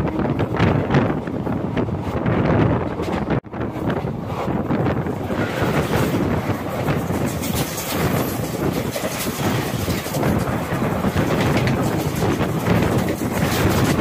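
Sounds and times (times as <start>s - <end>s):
rushing rail noise: 0.0s - 14.0s
wind on microphone: 0.0s - 14.0s
wheels clattering: 5.2s - 14.0s.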